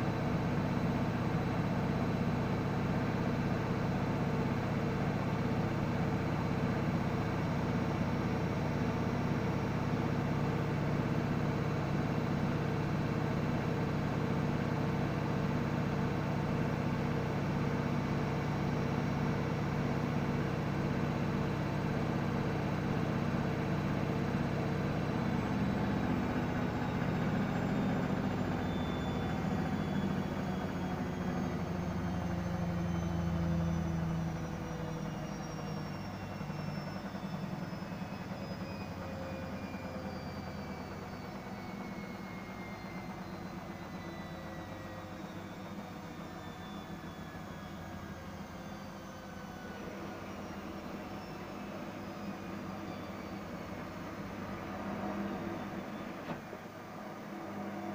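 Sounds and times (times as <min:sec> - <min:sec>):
washing machine spinning: 0:35.6 - 0:57.9.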